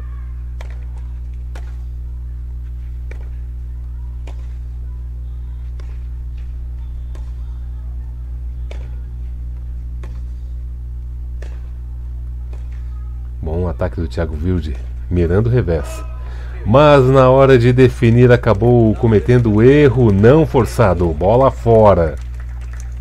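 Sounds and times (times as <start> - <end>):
steady low hum: 0.0 - 23.0
tennis ball struck by rackets: 0.6 - 2.0, 3.0 - 3.6, 4.2 - 4.7, 5.6 - 7.6, 8.6 - 9.2, 9.9 - 10.4, 11.3 - 11.8, 12.4 - 13.0.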